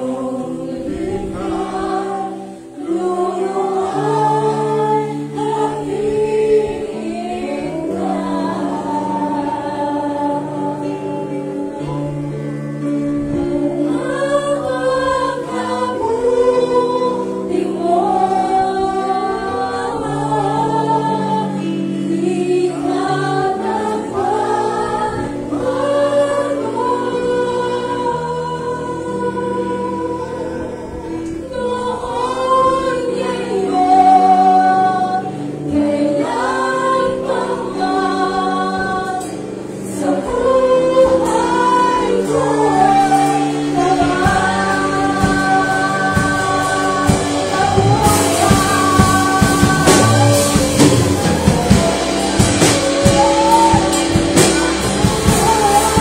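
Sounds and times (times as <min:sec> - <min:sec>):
electric guitars: 0:00.0 - 0:56.0
keyboard playing: 0:00.0 - 0:56.0
people singing along: 0:00.0 - 0:56.0
woman singing into microphone: 0:00.0 - 0:56.0
drum kit: 0:40.2 - 0:56.0
cymbals crashing: 0:45.2 - 0:56.0.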